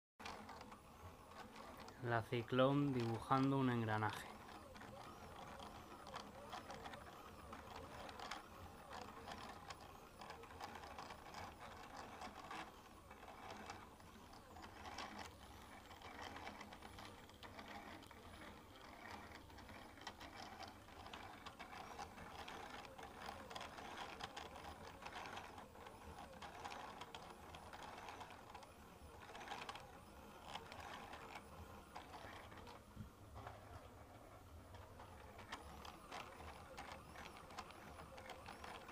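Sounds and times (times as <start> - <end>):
small mechanical ticks: 0.2 - 38.9
stepper motors whirring: 0.2 - 38.9.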